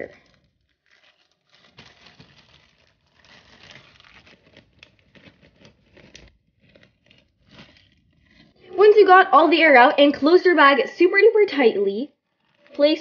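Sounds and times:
plastic bag crinkling: 0.0 - 9.0, 12.1 - 13.0.

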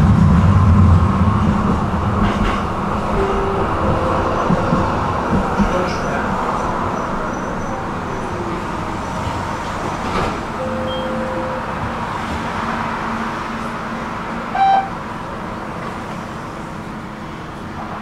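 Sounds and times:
tram running: 0.0 - 18.0
tram horn toot: 3.0 - 5.9, 10.6 - 13.7, 14.4 - 15.2.

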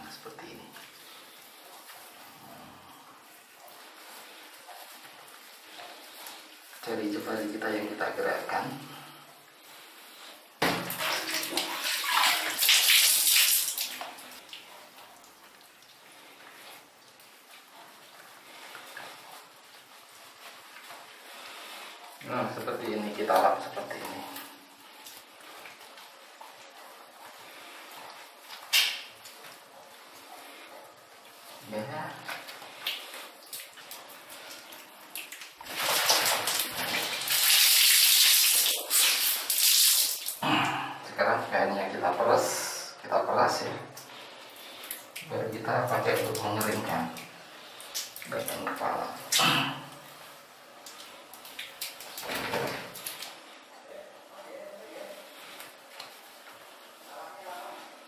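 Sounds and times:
water splashing on tiled floor: 9.7 - 29.7, 32.2 - 40.4, 44.0 - 53.5
wet cloth wrung out: 10.2 - 29.7, 31.2 - 40.8.

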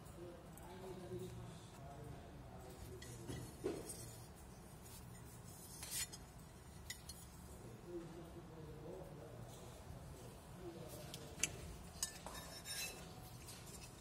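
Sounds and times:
metal clinks and scrapes: 2.6 - 7.6, 11.2 - 14.0.

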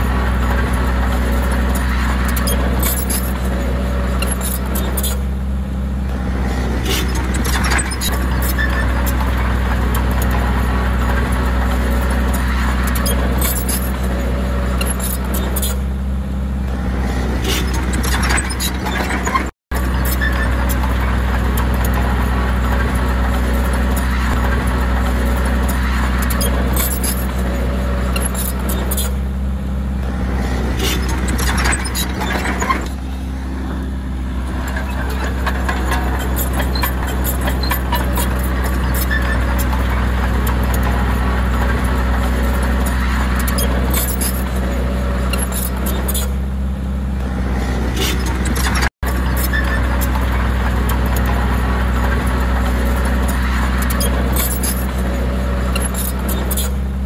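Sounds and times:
bulldozer diesel engine running: 0.0 - 57.0
steel tracks clanking: 17.0 - 29.2, 30.2 - 46.4, 47.3 - 56.8.

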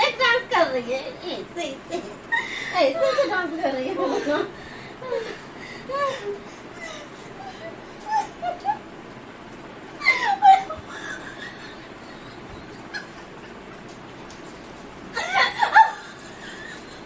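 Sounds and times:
woman squealing and laughing: 5.0 - 9.0, 9.9 - 13.4, 15.2 - 17.0.

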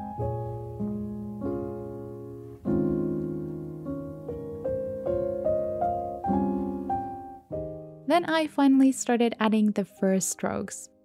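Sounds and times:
soft piano music: 0.0 - 11.0.

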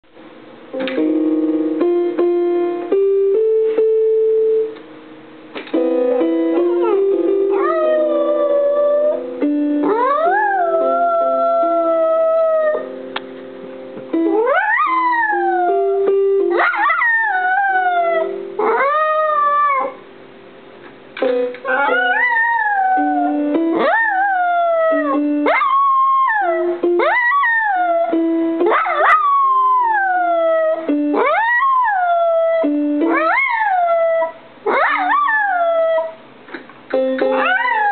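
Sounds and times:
piano music: 0.1 - 37.9
dog howling: 6.7 - 9.2, 9.9 - 12.8, 14.4 - 16.0, 21.7 - 28.2, 28.8 - 36.2, 37.3 - 37.9.

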